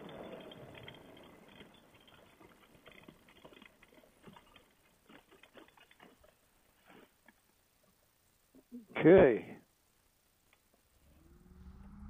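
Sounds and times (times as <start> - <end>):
faint crackles and ticks: 0.0 - 11.0.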